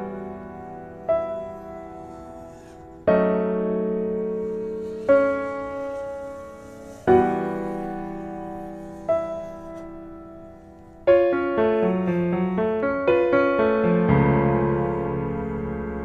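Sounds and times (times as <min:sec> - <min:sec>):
slow piano chords: 0:00.0 - 0:16.0.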